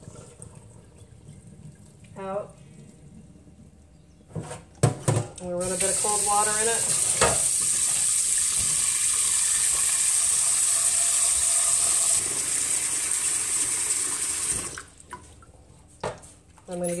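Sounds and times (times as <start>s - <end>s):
tap water running into a pot: 5.6s - 15.0s.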